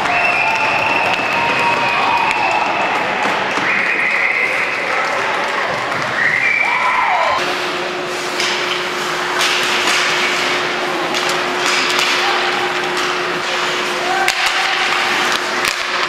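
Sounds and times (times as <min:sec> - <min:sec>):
crowd noise: 0:00.0 - 0:16.0
hockey sticks and puck knocking: 0:08.2 - 0:16.0.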